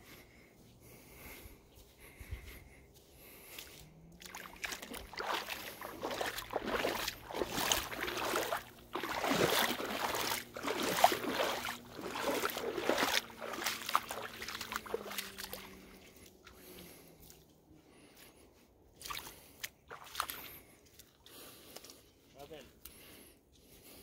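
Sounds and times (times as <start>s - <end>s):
paddle splashing in water: 4.2s - 15.9s.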